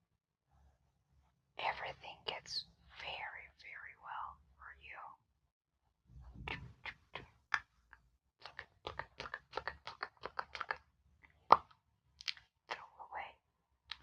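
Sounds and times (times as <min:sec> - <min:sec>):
wet mouth clicks and smacks: 0:08.4 - 0:12.8.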